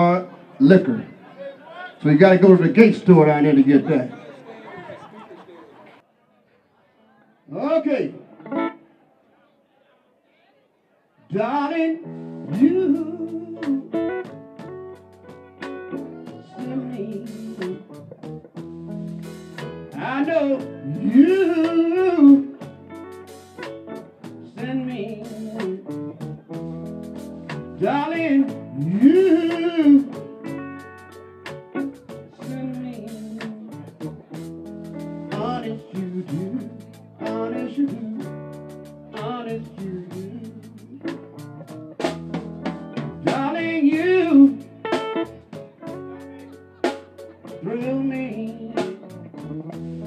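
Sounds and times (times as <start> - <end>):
electric guitar: 8.2 - 8.9, 11.4 - 50.0
person singing: 11.3 - 14.2, 15.9 - 18.0, 19.9 - 22.6, 24.5 - 26.7, 27.8 - 30.6, 32.1 - 34.4, 35.3 - 41.4, 43.2 - 50.0
bass guitar: 11.4 - 50.0
drum kit: 12.2 - 50.0.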